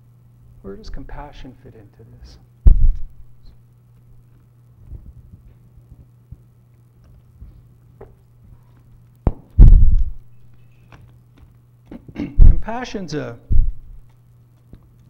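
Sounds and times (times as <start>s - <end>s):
low electrical hum: 0.0s - 15.0s
loud low thump: 2.7s - 3.1s, 9.3s - 10.2s, 12.4s - 12.7s, 13.5s - 13.9s.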